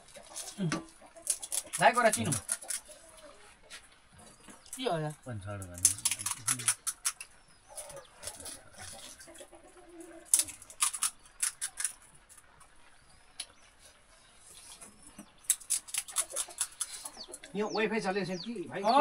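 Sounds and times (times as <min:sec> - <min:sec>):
crisp shells crunching: 0:05.7 - 0:07.2, 0:10.2 - 0:12.6.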